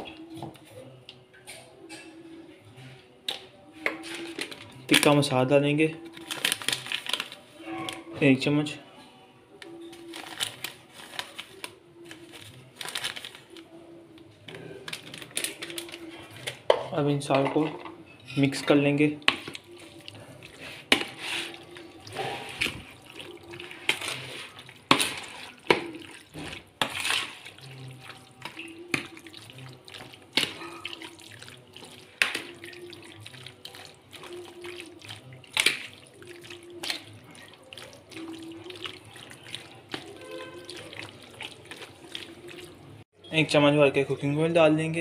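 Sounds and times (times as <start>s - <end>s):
wet squelching: 19.1s - 43.0s.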